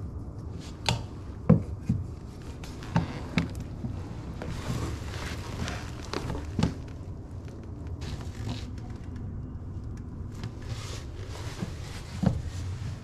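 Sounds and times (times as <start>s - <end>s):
pipe scraping and rustling: 0.0s - 9.2s, 10.3s - 13.0s
steady low hum: 0.0s - 13.0s.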